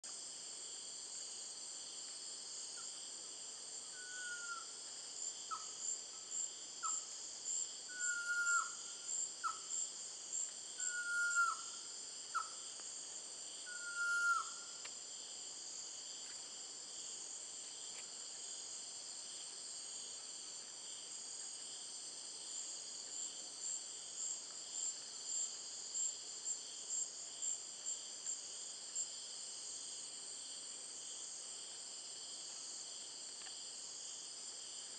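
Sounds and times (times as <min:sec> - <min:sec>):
insects trilling: 0:02.5 - 0:18.7.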